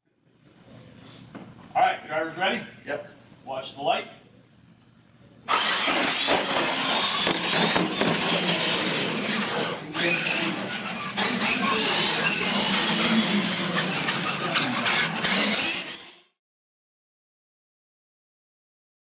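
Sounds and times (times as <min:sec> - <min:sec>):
toy trucks racing: 0:05.5 - 0:16.4.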